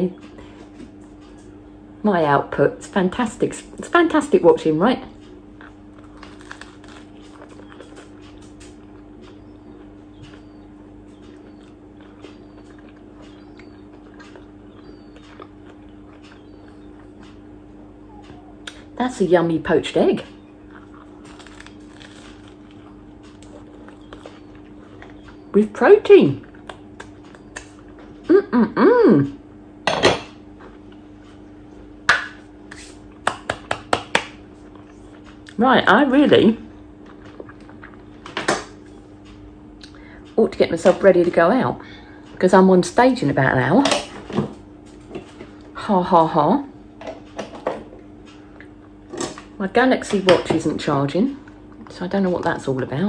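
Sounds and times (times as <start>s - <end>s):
low electrical hum: 0.0s - 53.0s
person chewing: 5.2s - 18.9s, 20.4s - 25.5s, 26.4s - 28.3s, 34.4s - 35.6s, 36.8s - 40.0s
mouth clicks: 18.0s - 18.9s.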